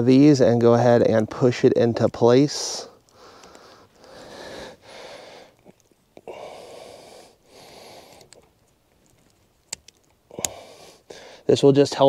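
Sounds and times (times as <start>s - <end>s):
person breathing heavily: 2.8s - 8.5s, 10.3s - 11.5s.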